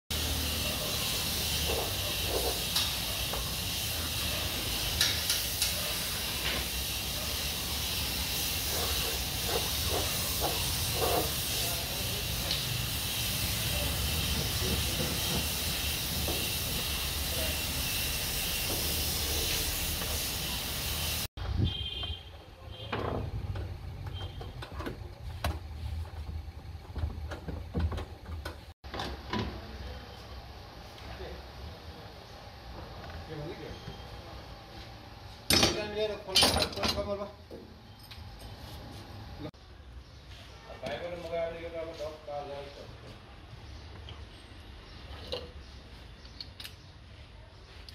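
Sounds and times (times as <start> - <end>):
paint spray gun hissing: 0.1 - 21.3
knocks and clatters: 21.4 - 29.6.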